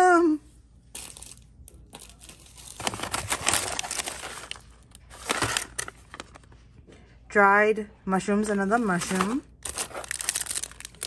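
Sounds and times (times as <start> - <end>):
paper bag crinkling: 1.0 - 6.5, 8.8 - 11.0.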